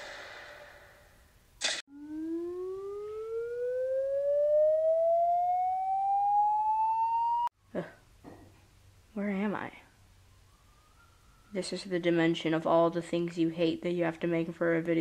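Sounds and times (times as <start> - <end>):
rising tone: 1.9 - 7.5.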